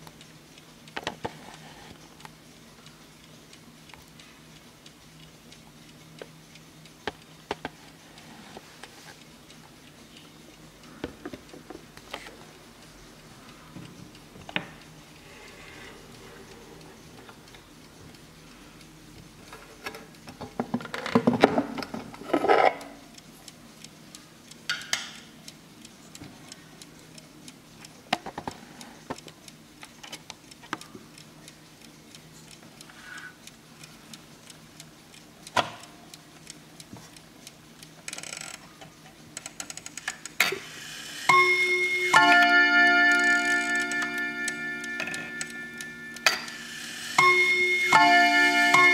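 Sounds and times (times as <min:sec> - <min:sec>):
clock ticking: 0:00.0 - 0:20.7, 0:21.8 - 0:40.5, 0:41.3 - 0:48.9
clock chime ringing: 0:41.3 - 0:48.9.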